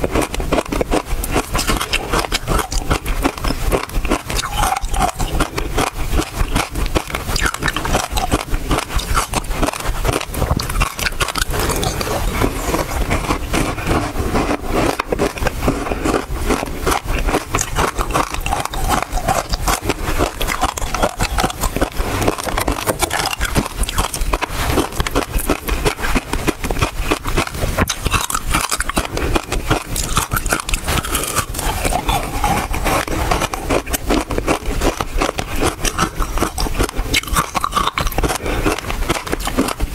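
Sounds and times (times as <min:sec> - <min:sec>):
crunching and chewing ice: 0:00.0 - 0:39.9.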